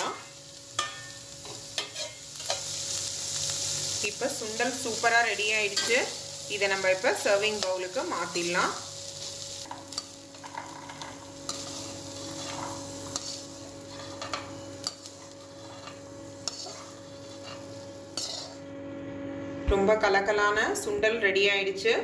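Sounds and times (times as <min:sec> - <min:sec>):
metal ladle scraping a pot: 0:10.4 - 0:18.6.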